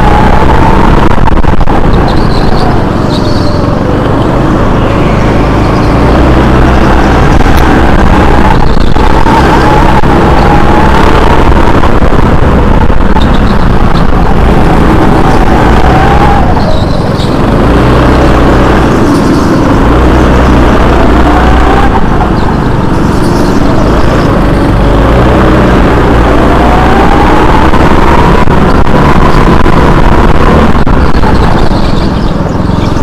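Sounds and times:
go-kart engine whine: 0:00.0 - 0:33.0.

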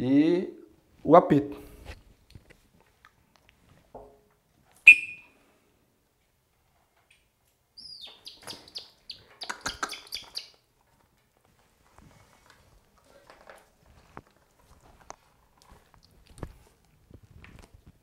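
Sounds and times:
loud whistle blast: 0:04.9 - 0:05.3.

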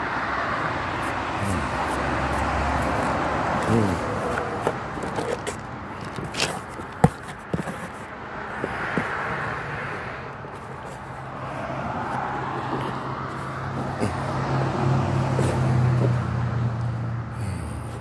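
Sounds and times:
traffic noise: 0:00.0 - 0:18.0.

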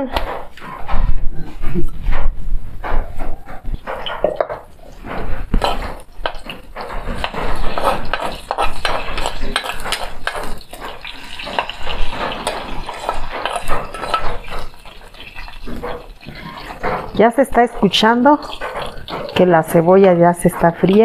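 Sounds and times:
plastic spoon scraping pan: 0:00.1 - 0:21.0
onion sizzling in hot oil: 0:05.6 - 0:21.0.

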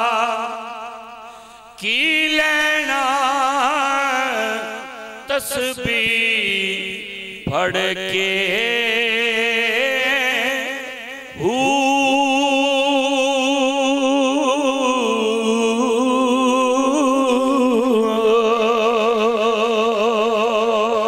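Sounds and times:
man breathing: 0:01.2 - 0:01.8
man chanting a sung note: 0:01.8 - 0:21.0.

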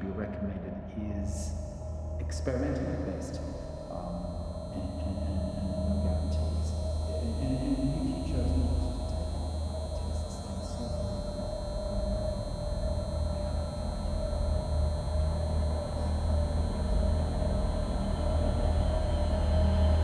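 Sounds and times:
low rumbling drone: 0:00.0 - 0:20.0
held mid-pitched tone: 0:02.2 - 0:12.5.

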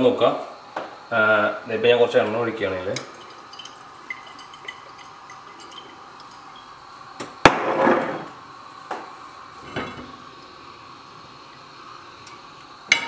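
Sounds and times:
glass bottle set down on counter: 0:07.5 - 0:08.2.

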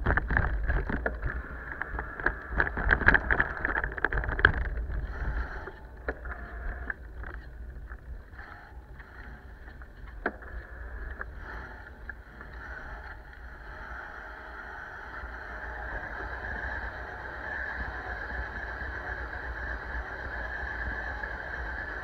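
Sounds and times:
bike clicks and knocks: 0:00.0 - 0:08.2, 0:08.9 - 0:12.6
wind rushing over microphone: 0:00.0 - 0:09.9.

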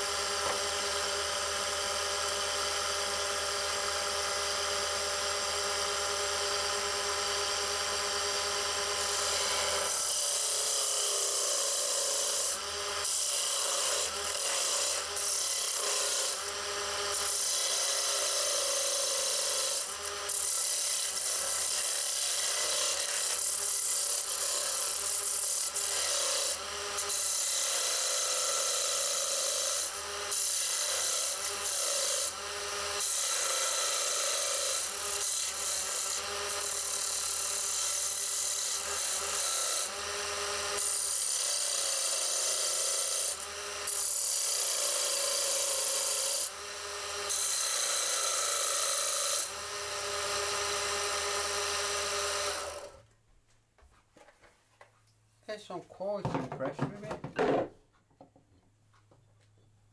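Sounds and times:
lathe humming: 0:00.0 - 0:24.6
chisel scraping spinning wood: 0:07.4 - 0:28.3.

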